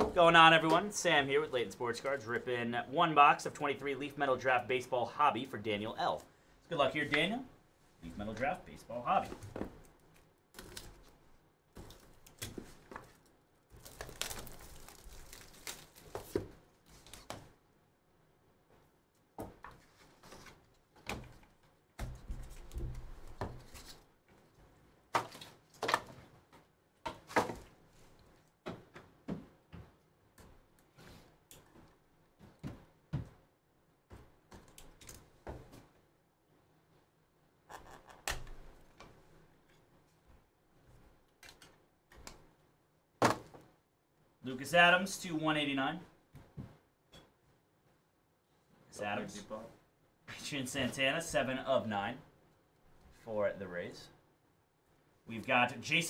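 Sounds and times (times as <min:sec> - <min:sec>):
plastic wrap crinkling and tearing: 0:13.2 - 0:17.3.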